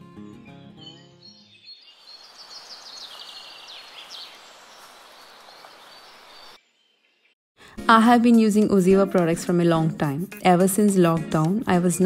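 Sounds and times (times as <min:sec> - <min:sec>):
small birds chirping: 0:00.2 - 0:07.4
background music: 0:07.6 - 0:12.0.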